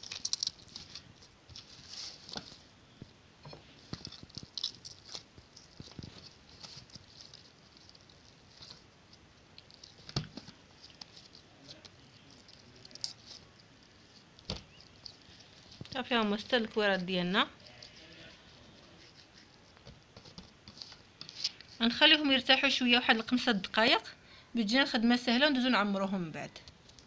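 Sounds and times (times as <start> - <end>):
dough patting and squishing: 0.0 - 22.4.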